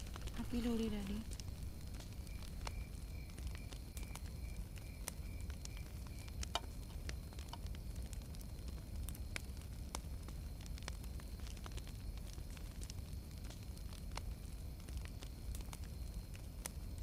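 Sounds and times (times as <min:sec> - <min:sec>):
low steady rumble: 0:00.0 - 0:11.0
bonfire crackling and popping: 0:00.0 - 0:17.0.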